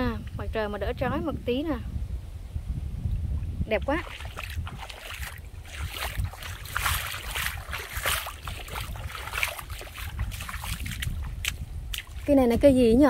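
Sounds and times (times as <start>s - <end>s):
wind rumbling on microphone: 0.0s - 13.0s
feet splashing through stream: 3.9s - 13.0s.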